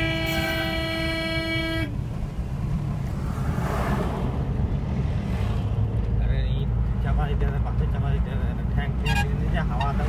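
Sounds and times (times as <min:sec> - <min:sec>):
car horn: 0:00.0 - 0:02.0, 0:09.0 - 0:10.0
road and engine rumble: 0:00.0 - 0:10.0
vehicle passing close: 0:02.2 - 0:06.1.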